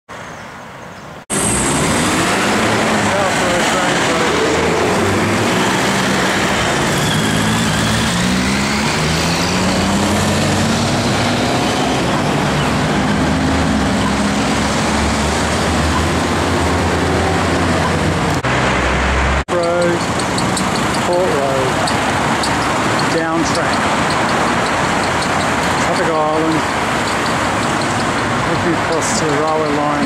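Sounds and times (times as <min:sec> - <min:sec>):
road traffic passing: 0:00.1 - 0:30.0.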